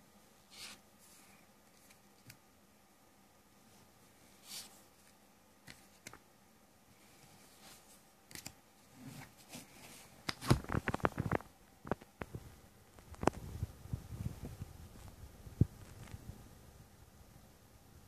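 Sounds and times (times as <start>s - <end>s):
playing cards handling noise: 9.2s - 12.3s.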